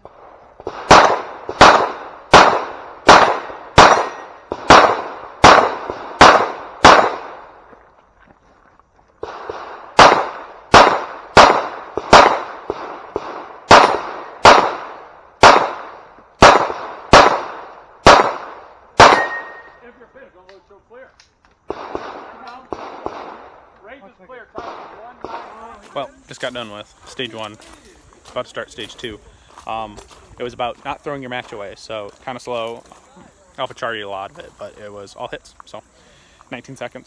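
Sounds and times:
pistol shots: 0:00.6 - 0:07.6, 0:09.2 - 0:19.8, 0:21.7 - 0:23.7, 0:24.6 - 0:25.7.

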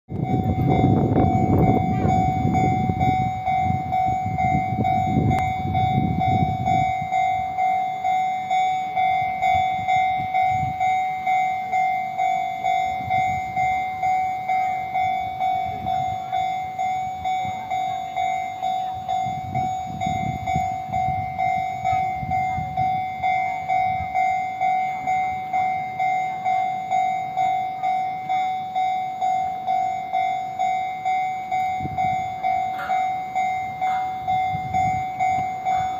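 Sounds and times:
level-crossing warning bell ringing: 0:00.1 - 0:35.9.

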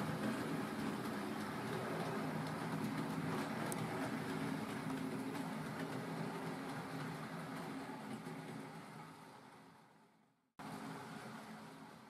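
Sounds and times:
model train motor hum: 0:00.0 - 0:09.9
train wheels on track: 0:00.0 - 0:09.9.

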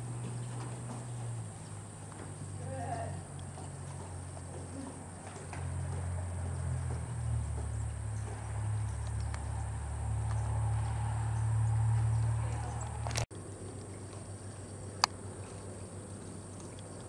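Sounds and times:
horse hoofbeats on sand: 0:00.0 - 0:13.1
insects chirring: 0:00.0 - 0:17.0
steady low rumble: 0:00.0 - 0:17.0.

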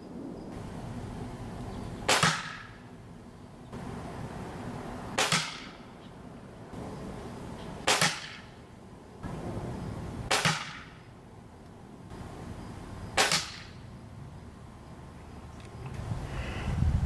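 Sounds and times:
pellet rifle shots: 0:02.0 - 0:02.8, 0:05.2 - 0:05.8, 0:07.8 - 0:08.5, 0:10.3 - 0:11.0, 0:13.2 - 0:13.8.

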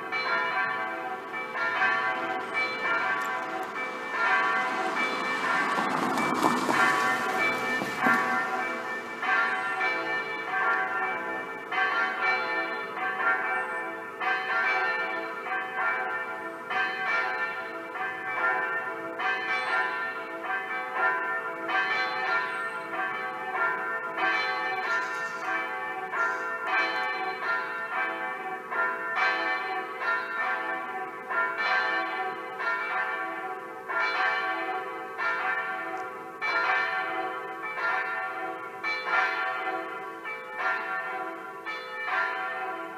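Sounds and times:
electronic church bells pealing: 0:00.0 - 0:42.9.

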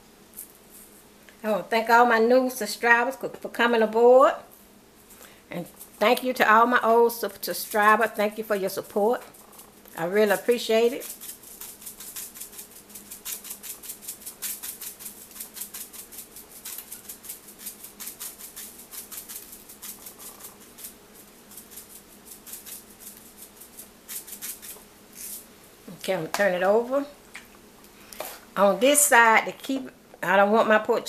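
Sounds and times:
faint steady hum: 0:00.0 - 0:31.0
spice shaker rattling: 0:05.7 - 0:06.2, 0:09.2 - 0:25.5.

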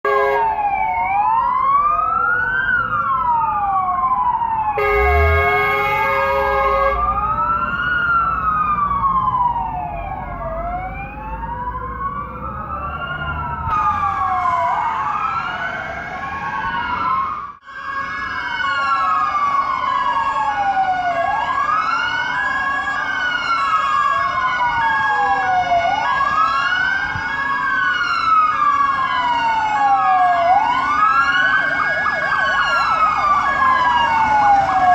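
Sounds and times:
air horns blasting: 0:00.0 - 0:00.5, 0:04.8 - 0:07.2
fire engine sirens wailing: 0:00.0 - 0:34.9
truck diesel engine revving: 0:04.8 - 0:07.2.

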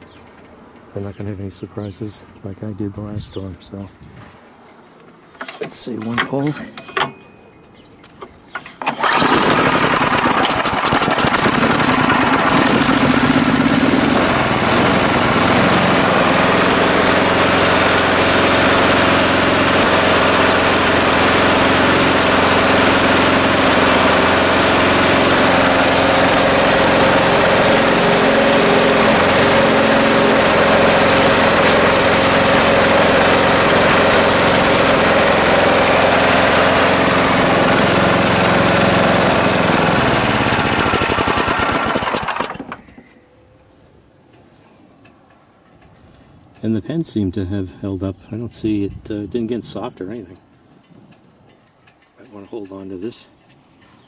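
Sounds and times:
pull-start cord: 0:08.6 - 0:15.9, 0:39.1 - 0:43.0
snow blower engine running: 0:08.9 - 0:42.8.

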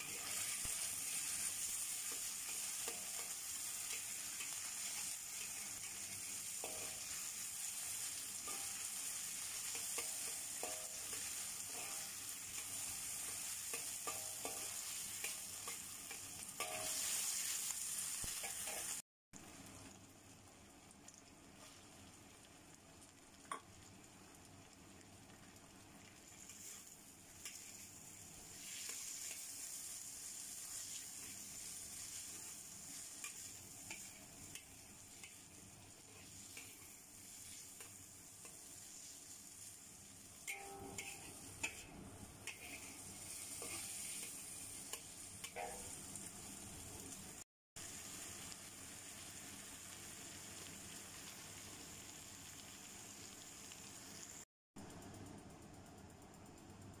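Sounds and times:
vegetables sizzling in oil: 0:00.0 - 0:56.3
metal spatula scraping wok: 0:40.5 - 0:46.0.

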